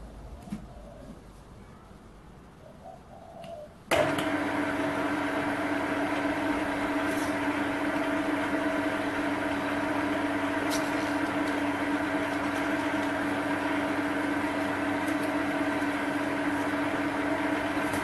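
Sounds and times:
lathe motor humming: 3.9s - 18.0s.

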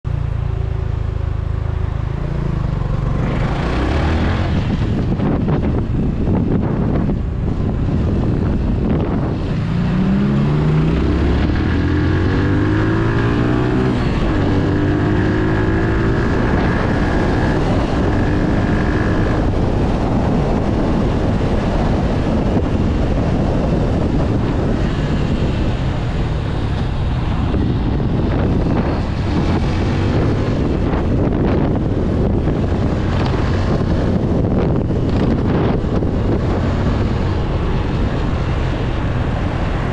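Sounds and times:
motorcycle engine accelerating: 0.1s - 39.9s
wind noise on microphone: 0.3s - 39.9s.

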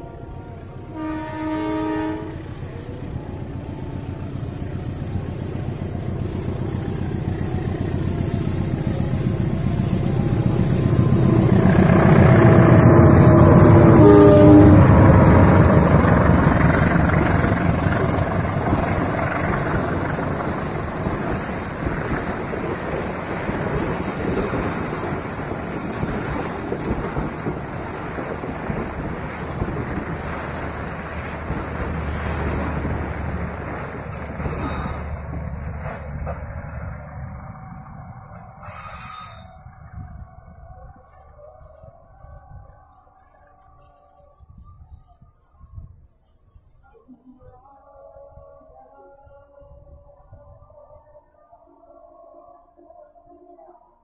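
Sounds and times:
locomotive horn: 0.0s - 3.1s, 9.5s - 22.2s
locomotive engine rumble: 0.0s - 45.4s
train wheels rolling on rails: 2.3s - 43.4s.

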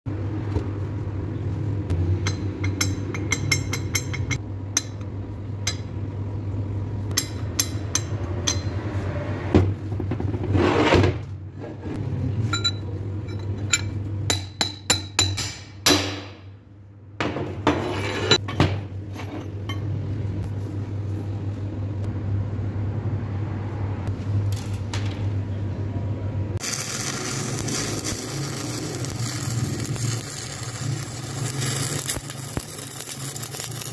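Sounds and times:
steel clinking and knocking: 2.2s - 5.0s
welding arc crackling: 26.6s - 33.9s.

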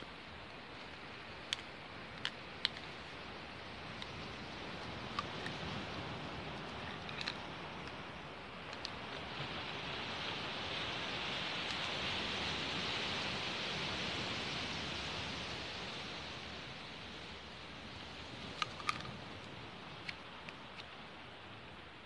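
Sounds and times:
waves washing on pebble beach: 0.0s - 21.8s.

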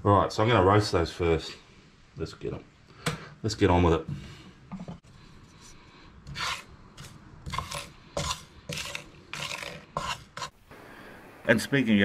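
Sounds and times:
wooden spoon scraping spices in pan: 4.9s - 10.6s.

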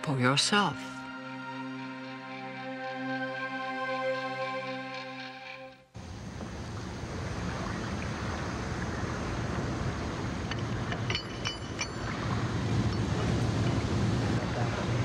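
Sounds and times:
wind: 0.0s - 15.0s
moving water: 6.0s - 15.0s
light clinks: 10.4s - 14.4s.

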